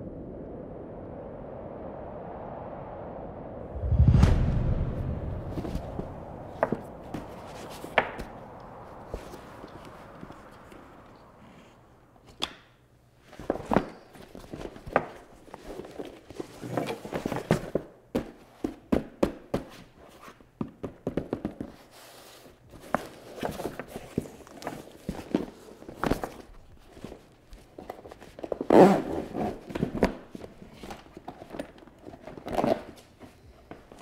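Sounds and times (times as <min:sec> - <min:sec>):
handling noise burst: 0:03.8 - 0:11.8
knocks and taps on packaging: 0:17.5 - 0:19.8, 0:20.6 - 0:21.8.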